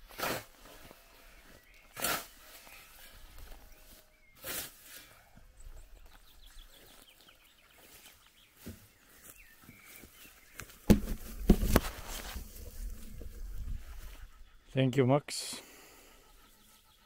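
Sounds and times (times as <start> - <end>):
camera handling knocks and thuds: 10.8 - 12.0.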